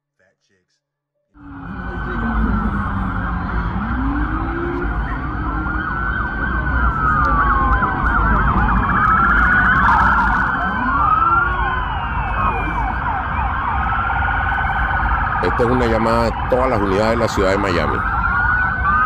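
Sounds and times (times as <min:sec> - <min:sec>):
low rumble: 0:01.4 - 0:15.4
police sirens wailing: 0:01.4 - 0:19.0
yelping siren: 0:01.4 - 0:19.0.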